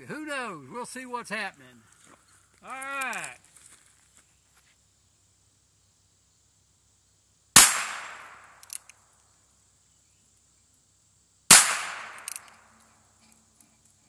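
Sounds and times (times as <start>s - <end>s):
revolver gunshots: 7.6s - 8.6s, 11.5s - 12.5s.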